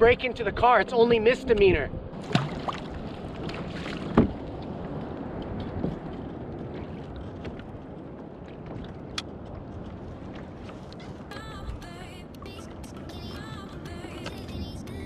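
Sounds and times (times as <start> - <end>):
wind on microphone: 1.5 - 12.0
water lapping around a kayak: 2.1 - 15.0.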